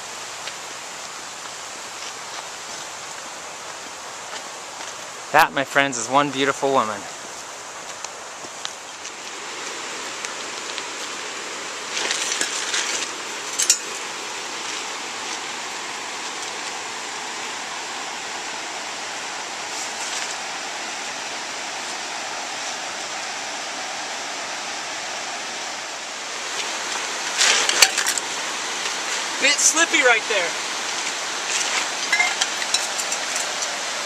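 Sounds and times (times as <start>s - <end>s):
creek and waterfall rushing: 0.0s - 34.0s
rustling: 11.9s - 14.0s, 26.6s - 28.2s.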